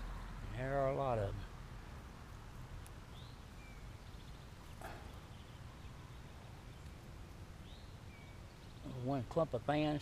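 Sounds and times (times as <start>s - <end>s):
high bird chirps: 3.1s - 7.0s.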